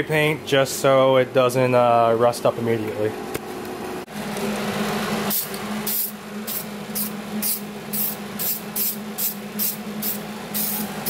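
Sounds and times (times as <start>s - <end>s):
spray paint can hissing: 5.3s - 11.0s.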